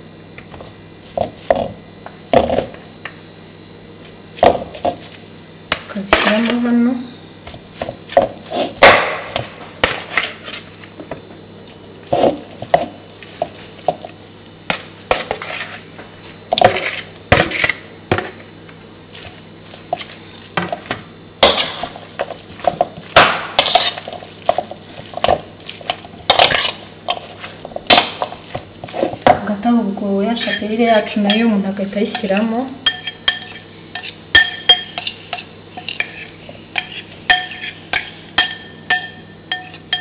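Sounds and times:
metal spoon scraping bowl: 30.4 - 31.5, 32.1 - 37.8.

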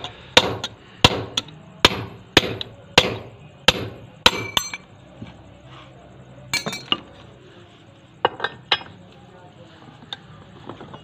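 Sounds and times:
hammer striking steel chisel: 0.0 - 4.8
metal tools clinking: 4.4 - 4.9, 6.5 - 7.2.

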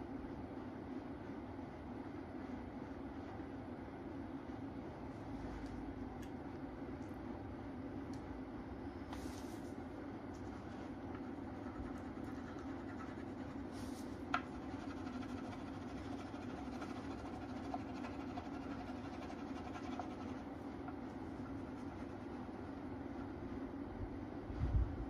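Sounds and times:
steady low hum: 0.0 - 25.0
colouring strokes scratching on paper: 10.4 - 20.6, 21.4 - 22.5.

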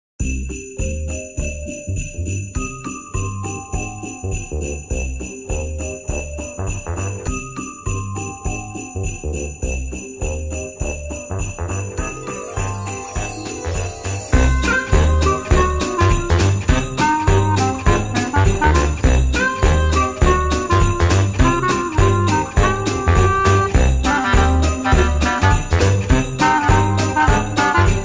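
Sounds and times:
festive music: 0.2 - 28.0
jingling sleigh bells: 0.2 - 28.0
pulsing bass beat: 14.3 - 28.0.

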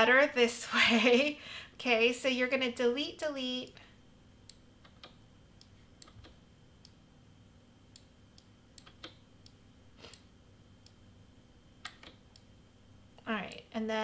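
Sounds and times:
mouse and keyboard clicks: 8.8 - 9.2.

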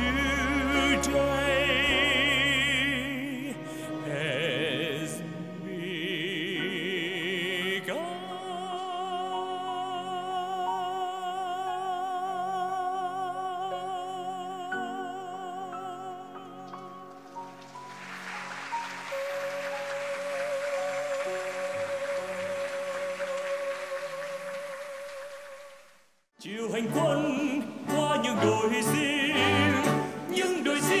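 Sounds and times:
man singing with vibrato: 0.0 - 17.1, 26.4 - 31.0
symphony orchestra chords: 0.0 - 25.8, 26.5 - 31.0.

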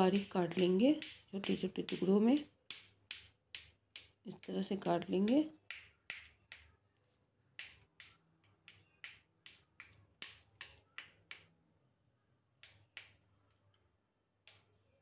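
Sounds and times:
knife dicing on a metal plate: 0.0 - 6.8.

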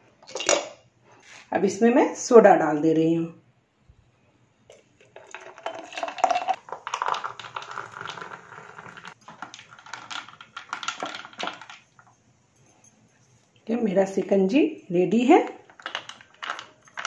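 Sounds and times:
soda water fizzing: 5.0 - 11.7
ice clicking against glass: 5.0 - 12.0, 15.6 - 17.0.

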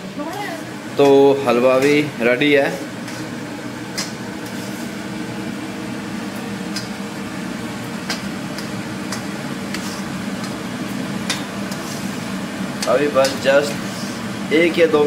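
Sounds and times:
kitchen fan humming: 0.0 - 15.0
metal spatula scraping a pan: 3.0 - 3.4, 11.7 - 12.2.

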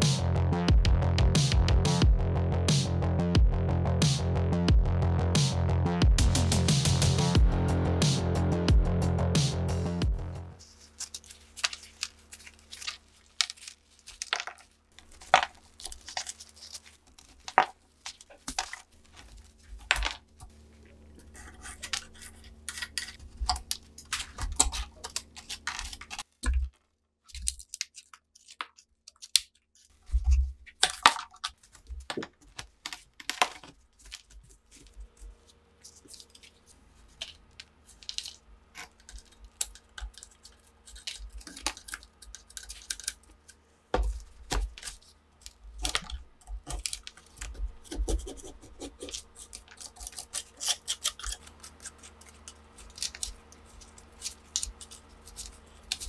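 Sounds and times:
dirt crumbs falling: 10.6 - 27.9, 30.8 - 47.9.

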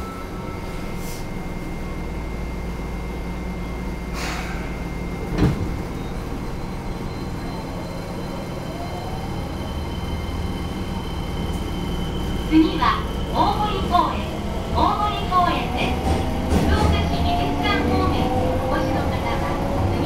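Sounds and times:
train low hum: 0.0 - 20.0
air hiss: 4.1 - 4.8.

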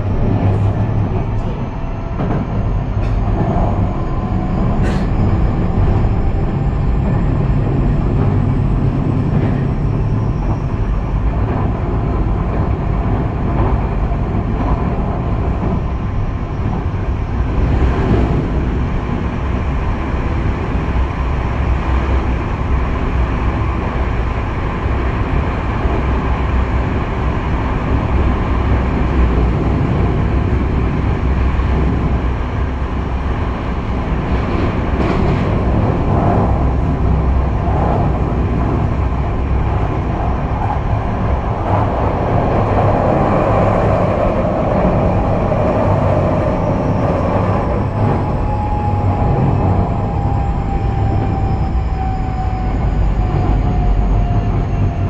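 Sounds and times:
train wheels rumbling on rail: 0.0 - 55.0
train motor whine: 43.5 - 55.0.

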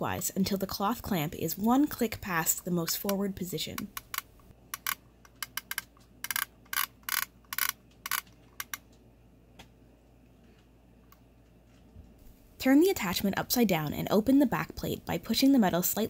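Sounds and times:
mechanism ratcheting clicks: 3.9 - 8.9.

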